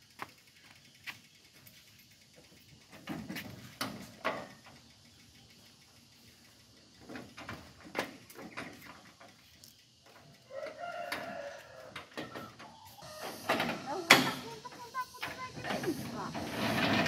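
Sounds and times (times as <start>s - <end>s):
gate squeaking: 12.1s - 17.0s.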